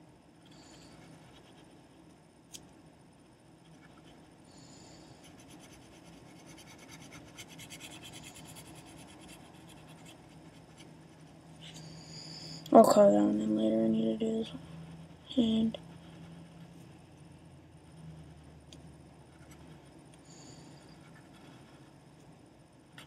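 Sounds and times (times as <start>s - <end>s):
pencil scratching on paper: 0.6s - 1.8s, 5.1s - 11.8s, 20.9s - 21.9s.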